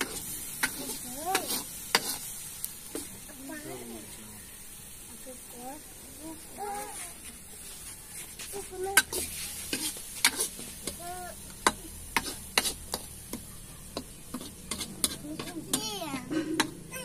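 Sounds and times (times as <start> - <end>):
metal ladle scraping a pan: 0.0 - 2.3, 7.6 - 11.0, 11.6 - 13.1, 14.2 - 16.7
frying sizzle: 0.0 - 17.0.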